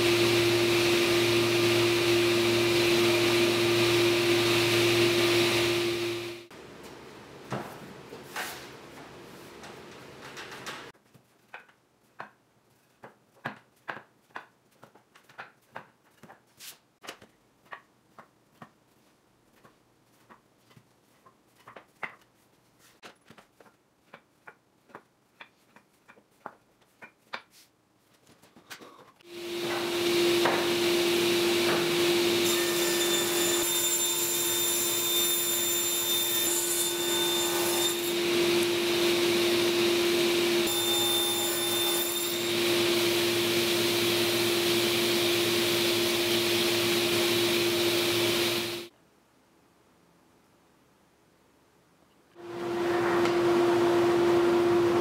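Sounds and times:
table saw running: 0:00.0 - 0:06.5, 0:29.3 - 0:48.9, 0:52.4 - 0:55.0.

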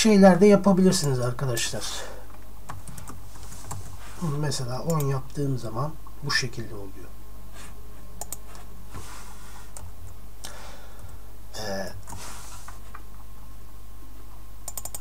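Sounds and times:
steady low hum: 0:00.0 - 0:15.0
keyboard keystrokes: 0:14.7 - 0:15.0
mouse clicks: 0:14.7 - 0:15.0.

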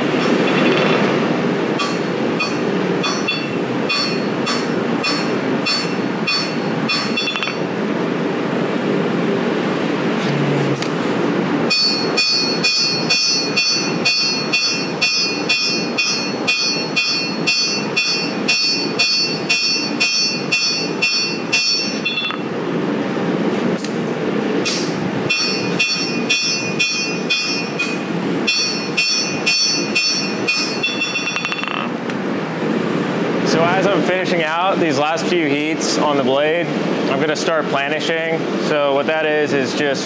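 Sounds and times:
hammer ringing on anvil: 0:01.8 - 0:07.7, 0:11.7 - 0:22.5, 0:25.3 - 0:31.9.

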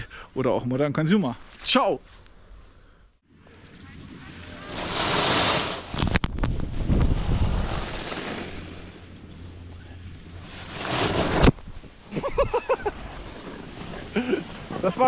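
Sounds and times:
skis scraping over packed snow: 0:03.6 - 0:09.1, 0:10.4 - 0:11.5
wind buffeting microphone: 0:05.8 - 0:08.0.

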